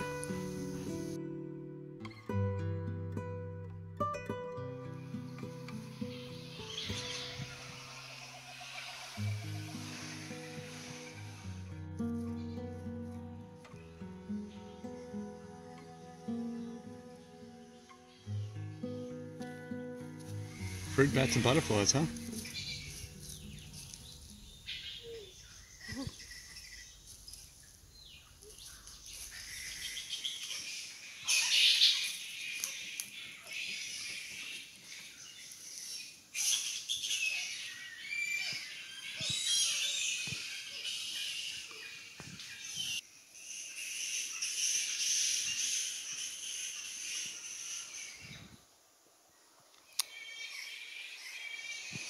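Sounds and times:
insects chorus: 0.0s - 1.3s, 4.9s - 13.0s, 13.8s - 19.4s, 20.1s - 52.0s
steady high hiss: 0.0s - 1.6s, 4.6s - 52.0s
bats squeaking and chattering: 5.3s - 11.4s, 20.4s - 27.4s, 28.4s - 48.4s.

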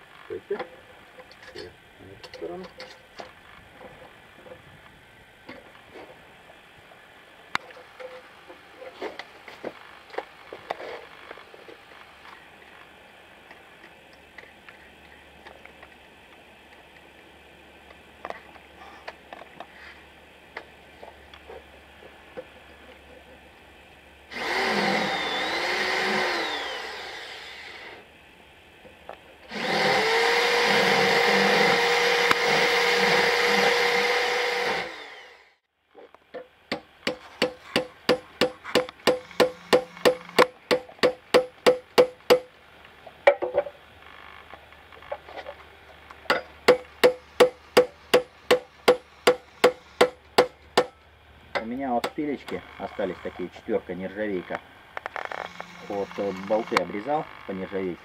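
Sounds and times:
electric drill reaming metal: 24.3s - 28.1s, 29.5s - 35.6s, 39.0s - 40.5s, 55.2s - 57.5s.

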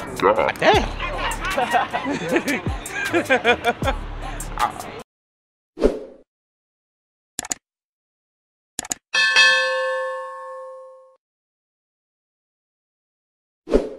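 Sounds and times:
bright bell ding: 9.2s - 11.2s.

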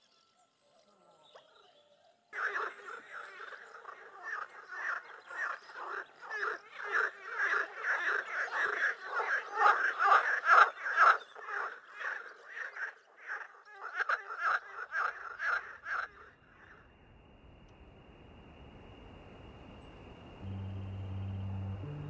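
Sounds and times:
frogs croaking in chorus: 2.3s - 17.1s.

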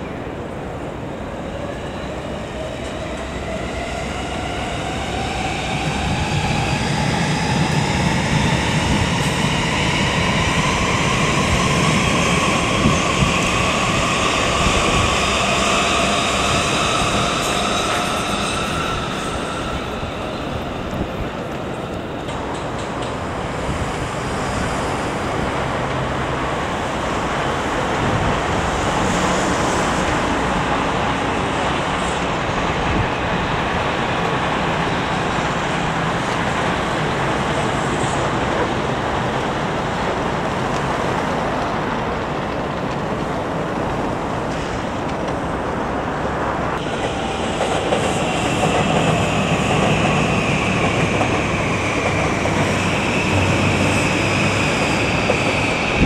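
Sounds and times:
train wheels rumbling on rails: 1.5s - 56.0s.

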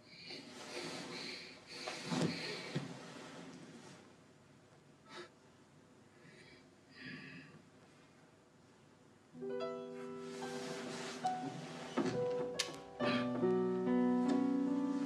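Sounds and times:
man breathing faintly: 0.0s - 3.5s
soft held music notes: 9.4s - 15.0s.

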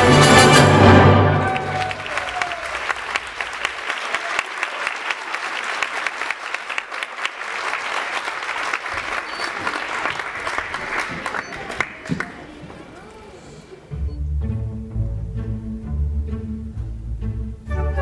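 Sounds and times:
audience applauding: 1.2s - 13.8s.

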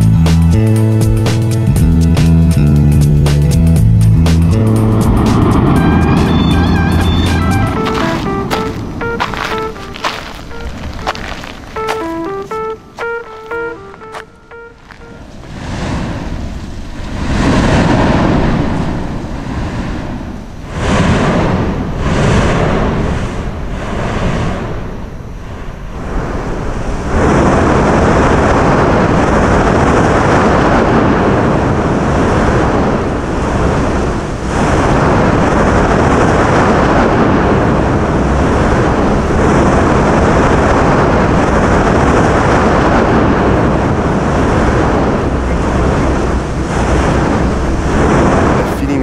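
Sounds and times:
volcanic vents roaring: 15.5s - 49.0s.

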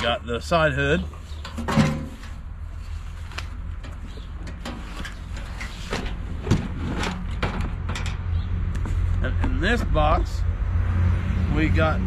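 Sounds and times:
metal panel clunk: 1.4s - 2.4s, 3.8s - 8.2s.

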